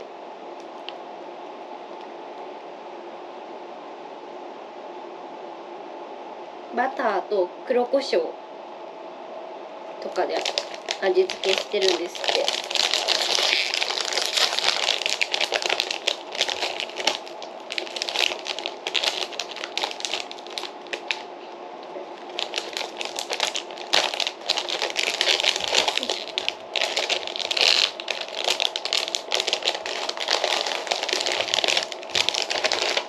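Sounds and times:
foil chip bag crinkling: 0:10.2 - 0:21.3, 0:22.1 - 0:33.0.

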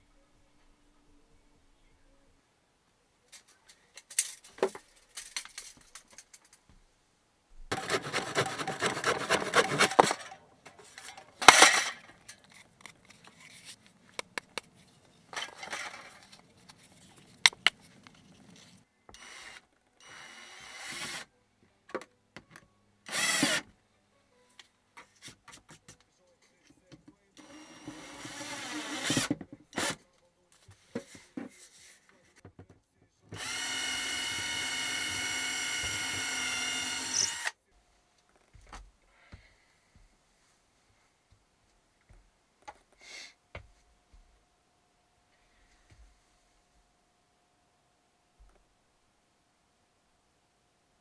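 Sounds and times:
hand saw cutting wood: 0:07.7 - 0:10.4
cordless drill driving screw: 0:19.1 - 0:21.3, 0:23.1 - 0:23.7, 0:27.4 - 0:30.0, 0:33.4 - 0:37.6.

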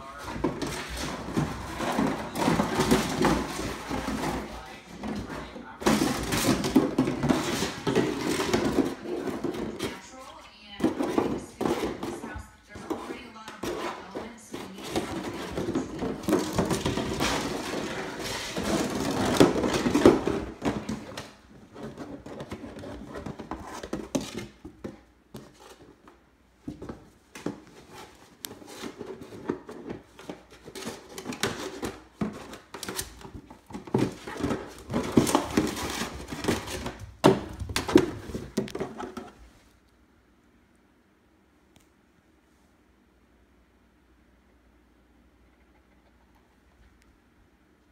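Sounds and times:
plastic jug clattering: 0:00.0 - 0:10.0, 0:10.8 - 0:25.5, 0:26.7 - 0:39.4.

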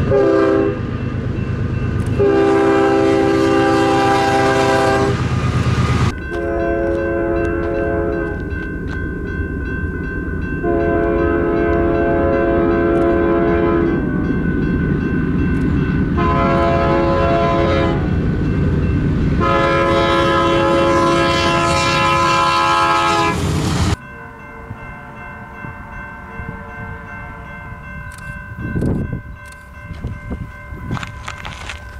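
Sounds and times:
train air horn blasts: 0:00.0 - 0:00.8, 0:02.2 - 0:05.3, 0:06.0 - 0:08.4, 0:10.6 - 0:14.1, 0:16.2 - 0:18.2, 0:19.4 - 0:23.6
train rumble: 0:00.0 - 0:31.9.

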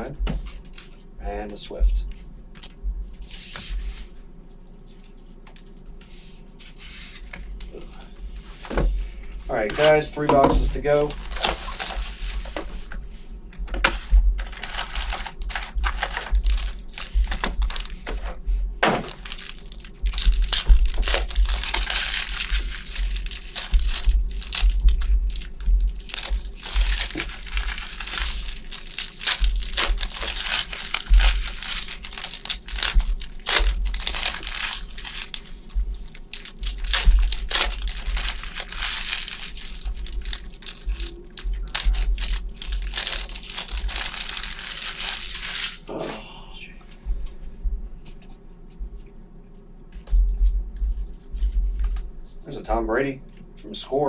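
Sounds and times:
plastic wrappers crinkling: 0:06.6 - 0:13.0, 0:13.7 - 0:46.0
plastic being torn open: 0:09.5 - 0:12.7, 0:13.8 - 0:45.9.

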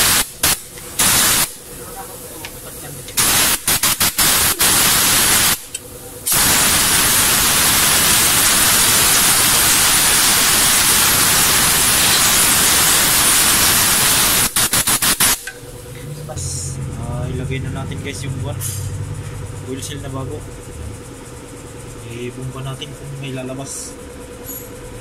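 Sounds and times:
pressurised spray hissing: 0:00.0 - 0:15.9.

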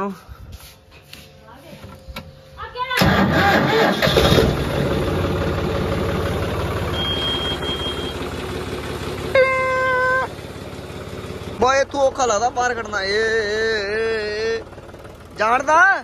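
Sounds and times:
tractor diesel engine idling: 0:03.0 - 0:16.0
horn beep: 0:06.9 - 0:08.3, 0:09.4 - 0:10.3.

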